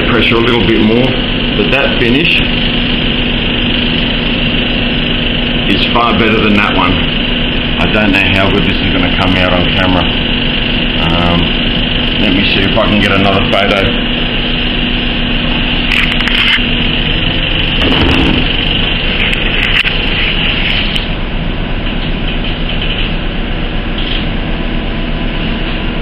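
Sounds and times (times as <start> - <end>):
motor drone: 0.0 - 26.0
camera rustling: 15.9 - 16.7, 17.8 - 21.1.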